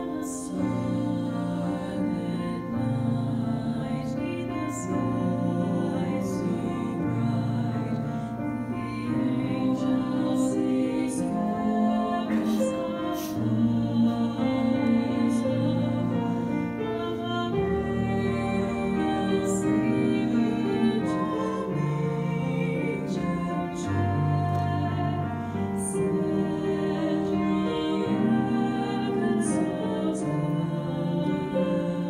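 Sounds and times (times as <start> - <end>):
woman singing: 0.0 - 32.0.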